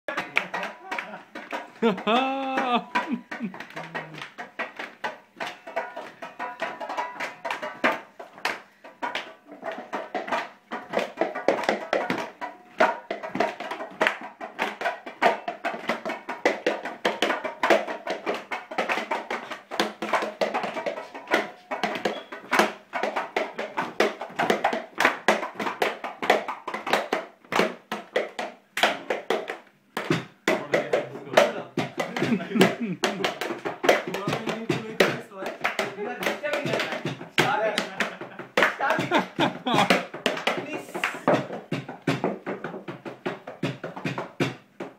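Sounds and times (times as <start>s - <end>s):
fast clapping: 0.0s - 44.9s
percussive strikes: 0.1s - 44.9s
voices singing: 1.8s - 4.2s.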